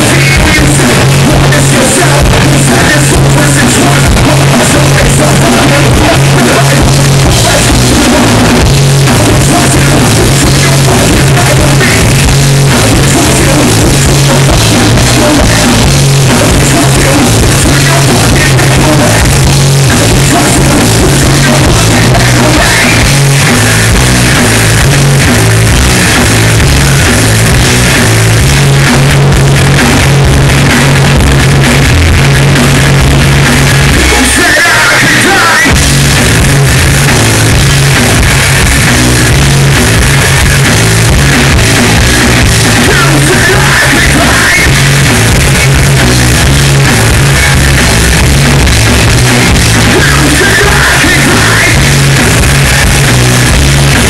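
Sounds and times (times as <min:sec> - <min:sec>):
person singing: 0:00.0 - 0:23.8, 0:33.8 - 0:35.8, 0:42.8 - 0:45.8, 0:49.8 - 0:52.0
live hard rock band: 0:00.0 - 0:54.0.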